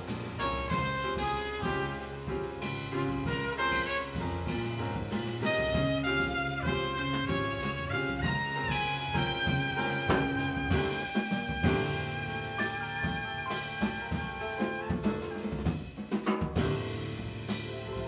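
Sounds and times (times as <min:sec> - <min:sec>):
electric bass: 0:00.0 - 0:15.9, 0:16.6 - 0:18.0
drum kit keeping time: 0:00.0 - 0:18.0
piano: 0:00.0 - 0:18.0
trumpet lead line: 0:00.4 - 0:02.3, 0:03.1 - 0:04.6, 0:05.4 - 0:15.6.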